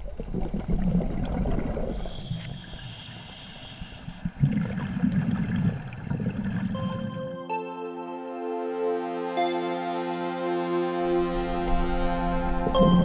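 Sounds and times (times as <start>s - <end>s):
bubbles underwater: 0.0s - 2.2s, 4.2s - 6.8s
diver breathing through regulator: 1.9s - 4.4s.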